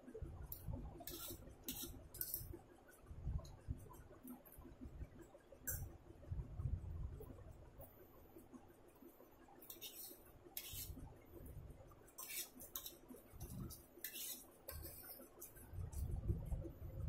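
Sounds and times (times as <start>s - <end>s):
fork scraping a ceramic plate: 1.0s - 2.4s, 9.6s - 11.0s, 12.2s - 15.3s.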